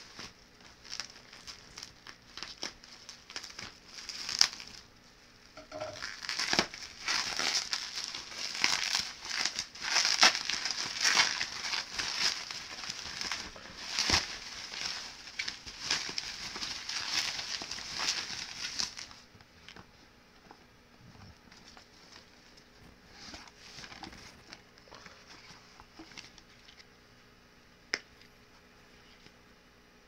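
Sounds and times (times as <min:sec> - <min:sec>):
plastic packaging crinkling: 0:00.0 - 0:04.9, 0:05.7 - 0:19.8, 0:21.5 - 0:26.9.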